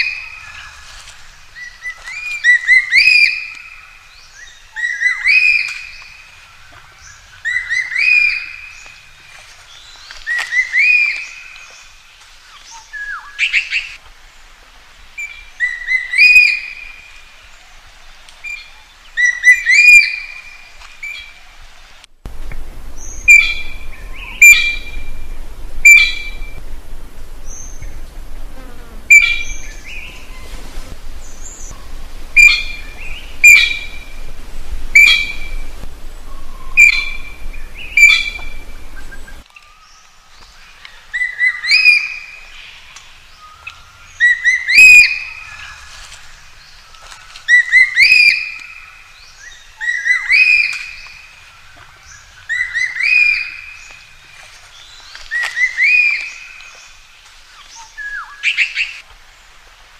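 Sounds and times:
low background noise: 0.0 - 59.9
magpie calling: 22.9 - 28.2, 29.1 - 30.6, 31.2 - 39.4.

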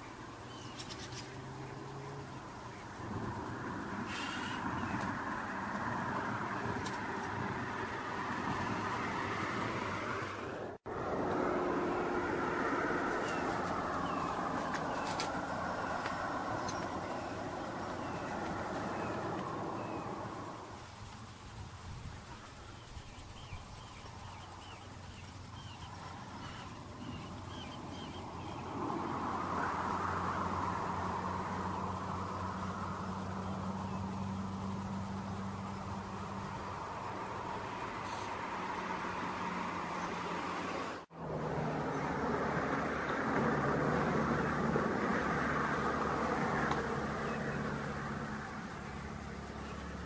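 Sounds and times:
bird chirping: 0.0 - 3.0, 13.0 - 29.1, 31.6 - 36.4
steady rushing noise: 0.0 - 50.0.

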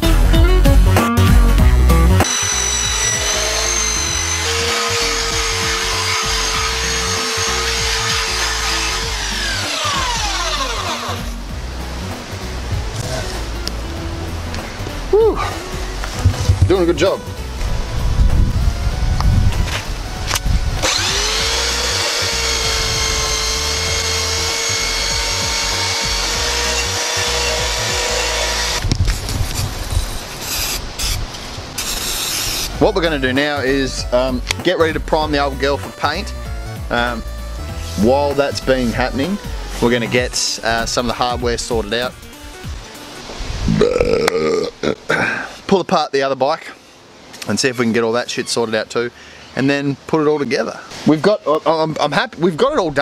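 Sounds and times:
background music: 0.0 - 28.9, 32.7 - 45.0
electric sander on metal: 2.2 - 11.5, 20.8 - 28.9, 31.8 - 32.8.

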